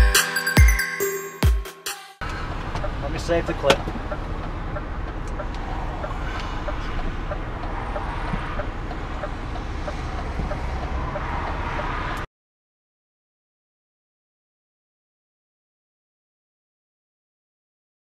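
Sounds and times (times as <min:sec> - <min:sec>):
diesel engine and road noise: 0:02.2 - 0:12.3.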